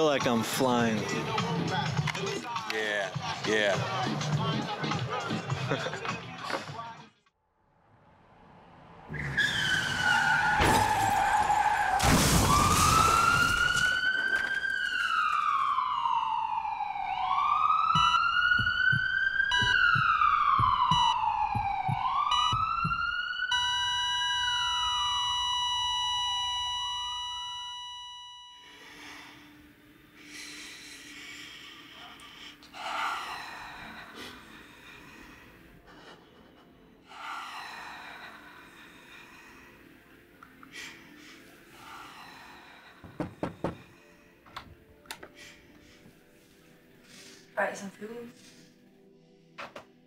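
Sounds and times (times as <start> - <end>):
emergency siren wailing: 9.0 - 28.7.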